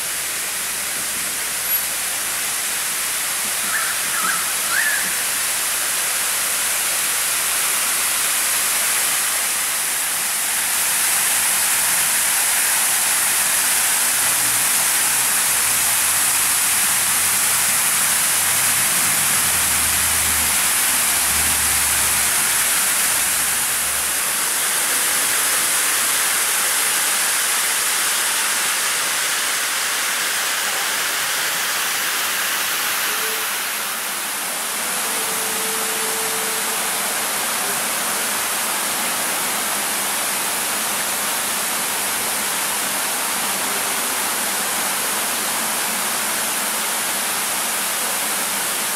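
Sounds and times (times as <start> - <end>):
fountain spray hissing: 0.0 - 48.9.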